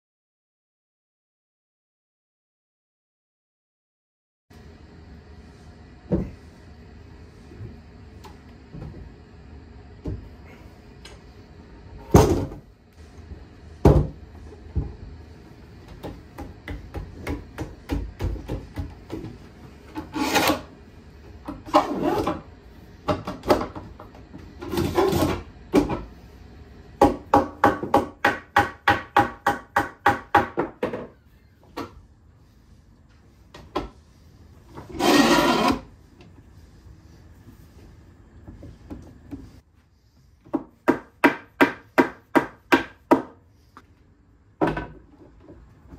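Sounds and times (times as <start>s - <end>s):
boards scraping together: 19.9s - 20.7s, 34.8s - 35.9s
wooden boards knocking on clamps: 27.0s - 31.2s.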